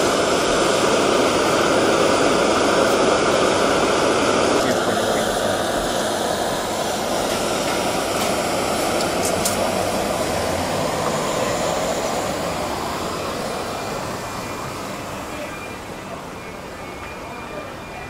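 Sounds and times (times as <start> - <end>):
gas torch burning: 0.0 - 17.8.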